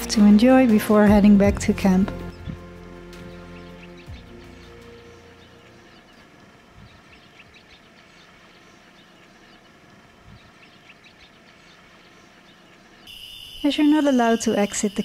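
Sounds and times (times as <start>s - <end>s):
soft low thumps: 0.3s - 2.8s, 6.7s - 7.1s
bird chirps: 2.2s - 15.0s
insect drone: 3.8s - 15.0s.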